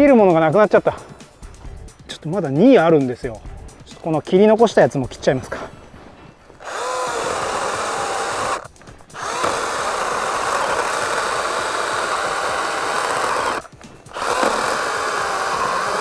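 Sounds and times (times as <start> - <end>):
chainsaw cutting wood: 6.6 - 16.0.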